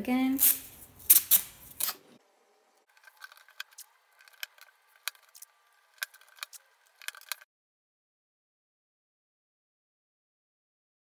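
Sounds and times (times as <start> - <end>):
masking tape crackling: 2.7 - 7.5.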